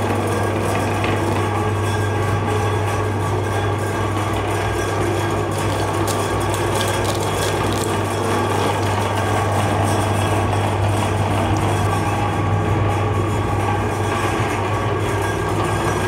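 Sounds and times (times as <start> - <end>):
electric meat grinder motor hum: 4.0 - 15.0
sharp crackles: 5.6 - 9.2.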